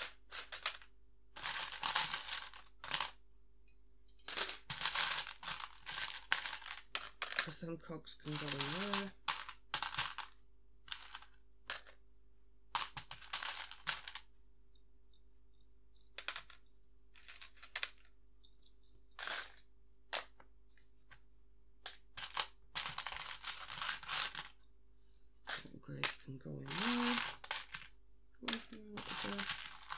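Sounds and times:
plastic pieces clicking and rattling: 0.0s - 3.2s, 4.1s - 12.0s, 12.7s - 14.3s, 16.0s - 20.4s, 21.8s - 24.7s, 25.4s - 29.9s.

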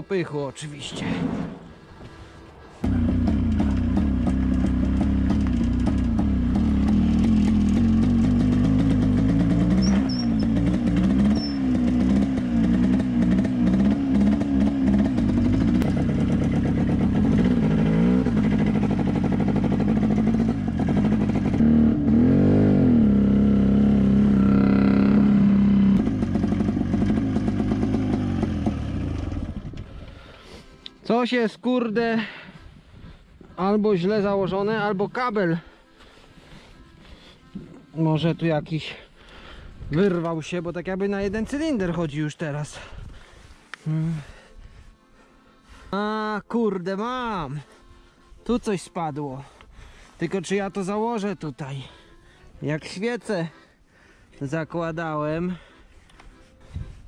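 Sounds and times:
motorcycle engine revving and missing: 2.8s - 29.6s.

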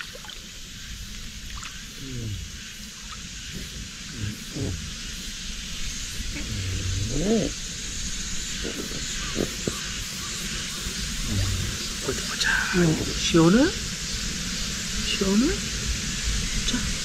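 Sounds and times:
low voice sounds: 2.0s - 2.6s, 3.6s - 5.0s, 6.3s - 7.6s, 11.2s - 13.2s.

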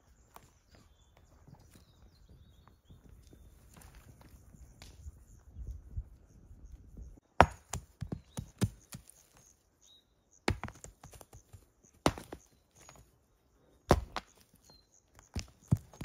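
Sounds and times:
faint bird chirps: 0.0s - 7.2s, 8.1s - 16.0s
stones knocking together: 7.4s - 9.2s, 10.5s - 13.1s, 13.9s - 14.5s, 15.2s - 16.0s.

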